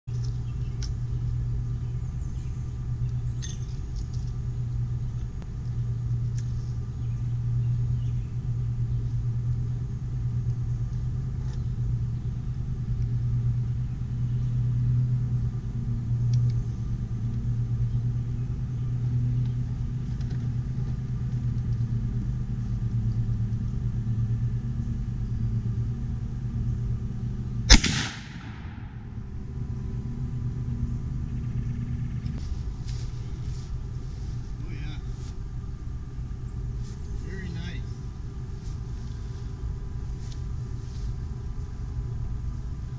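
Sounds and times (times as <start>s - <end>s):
low rumble: 21.8s - 35.1s
rifle shot: 27.7s - 29.2s.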